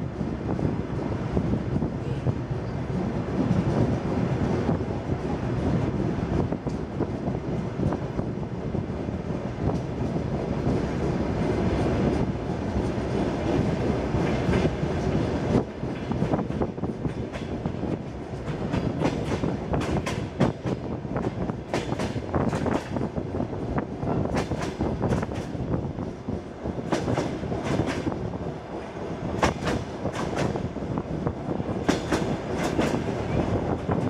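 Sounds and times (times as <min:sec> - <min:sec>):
train wheels rumbling: 0:00.0 - 0:34.0.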